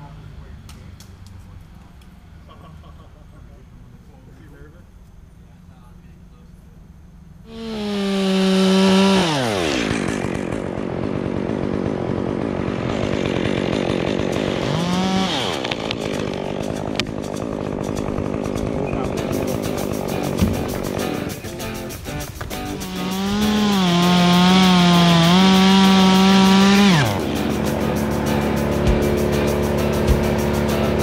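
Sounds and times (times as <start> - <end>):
chainsaw cutting wood: 7.5 - 31.0.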